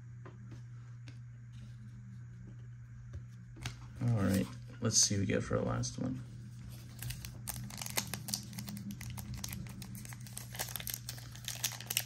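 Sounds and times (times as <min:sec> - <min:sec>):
plastic wrapper crinkling: 0:06.8 - 0:12.0.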